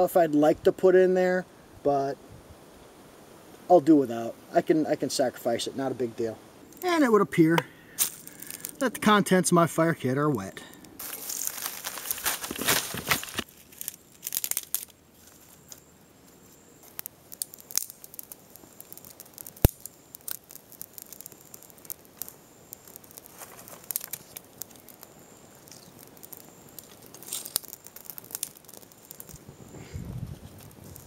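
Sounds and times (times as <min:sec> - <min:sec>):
small fire crackling: 0:00.0 - 0:31.0
twigs rustling: 0:07.9 - 0:09.0, 0:10.7 - 0:31.0
palm fibre tearing: 0:10.8 - 0:15.5, 0:16.8 - 0:29.4.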